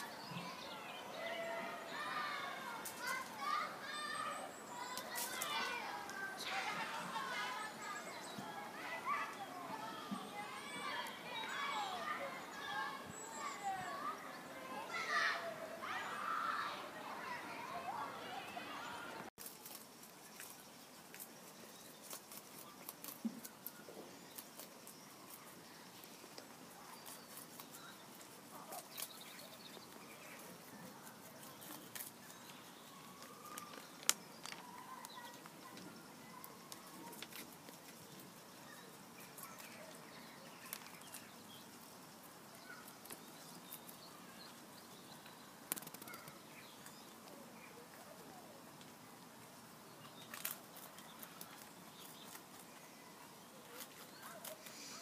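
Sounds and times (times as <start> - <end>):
rabbits crunching leaves: 0.0 - 55.0
sharp clicks: 45.7 - 46.4.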